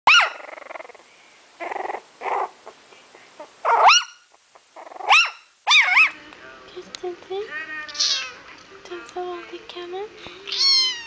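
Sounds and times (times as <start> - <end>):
puppy growling: 0.2 - 1.0, 1.6 - 2.8, 4.5 - 6.2
puppy howling cries: 7.6 - 8.4.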